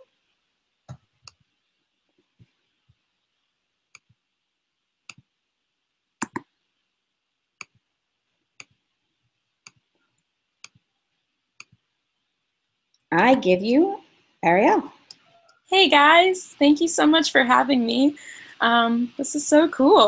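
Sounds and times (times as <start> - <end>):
faint steady hiss: 0.0 - 20.0
computer mouse clicks: 6.2 - 6.5.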